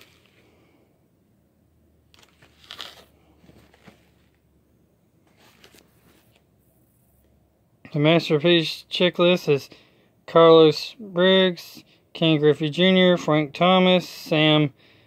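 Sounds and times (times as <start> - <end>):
cardboard box rustling and scraping: 2.3 - 4.4.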